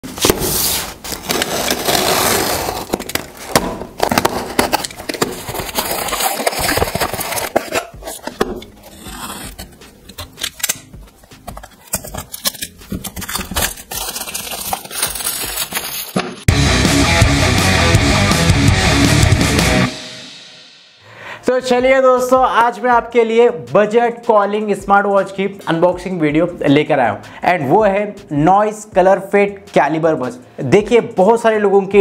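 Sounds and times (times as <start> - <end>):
cardboard box rustling and scraping: 0.0 - 10.4, 11.0 - 16.2.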